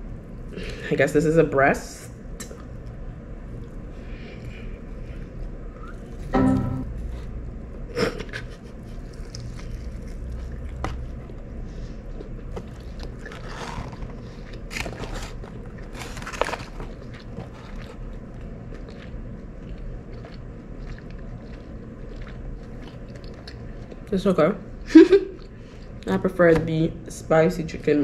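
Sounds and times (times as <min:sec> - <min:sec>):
biting and chewing: 0:08.4 - 0:24.2.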